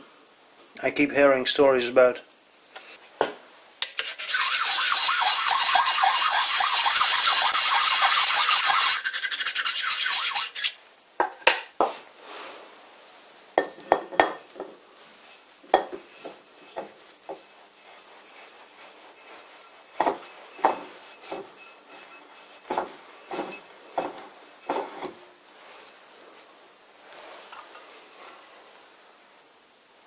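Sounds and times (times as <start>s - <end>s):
sharpening plate rasping on metal: 3.8s - 10.8s, 19.1s - 25.1s.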